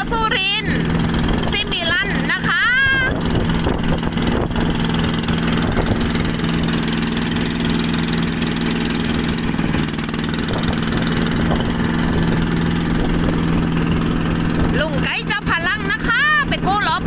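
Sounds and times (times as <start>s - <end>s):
boat engine droning: 0.0s - 17.0s
water rushing along hull: 0.0s - 17.0s.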